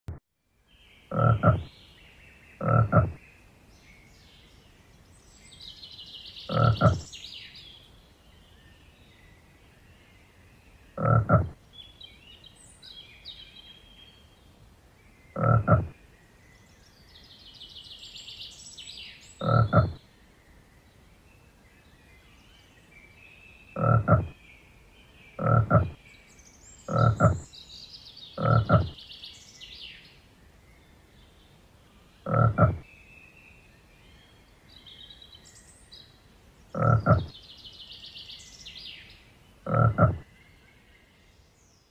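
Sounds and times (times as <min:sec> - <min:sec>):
frog croaking: 0:01.1 - 0:01.7, 0:02.6 - 0:03.2, 0:06.5 - 0:07.1, 0:11.0 - 0:11.6, 0:15.4 - 0:16.0, 0:19.4 - 0:20.0, 0:23.8 - 0:24.4, 0:25.4 - 0:26.0, 0:26.9 - 0:27.5, 0:28.4 - 0:29.0, 0:32.2 - 0:32.8, 0:36.8 - 0:37.3, 0:39.6 - 0:40.3.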